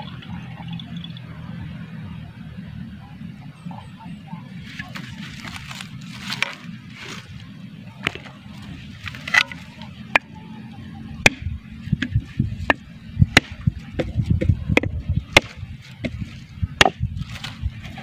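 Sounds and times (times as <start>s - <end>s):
machete chopping coconut husk: 9.1s - 10.3s, 11.2s - 17.6s.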